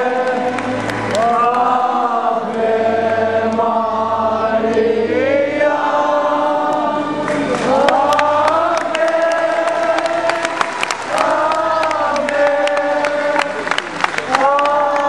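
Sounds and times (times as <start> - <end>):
crowd singing a hymn: 0.0 - 15.0.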